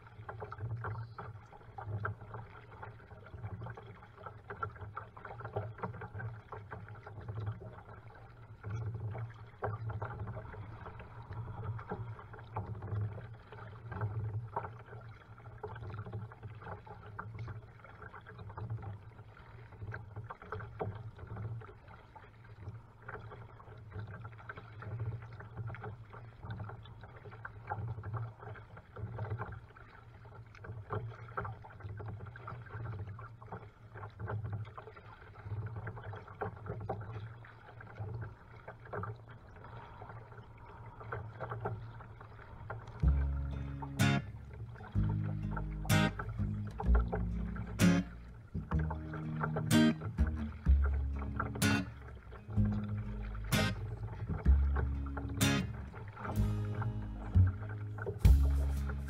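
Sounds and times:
water splashing around kayak: 0:00.0 - 0:59.0
low rumble: 0:43.0 - 0:59.0.

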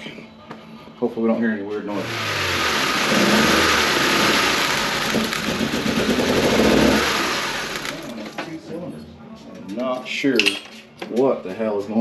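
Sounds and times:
car engine starting and running unevenly: 0:02.0 - 0:08.1.

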